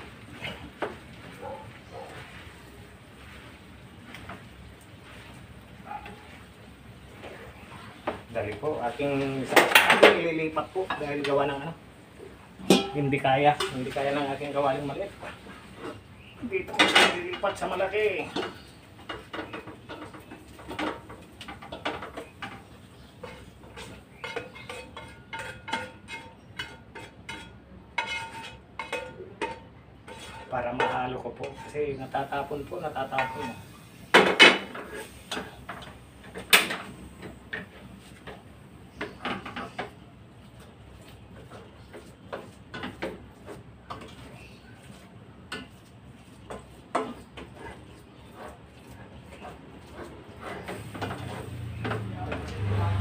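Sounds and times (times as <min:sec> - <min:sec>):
spoon scraping frying pan: 0:00.2 - 0:53.0
spoon clacking against metal pot: 0:12.6 - 0:13.8.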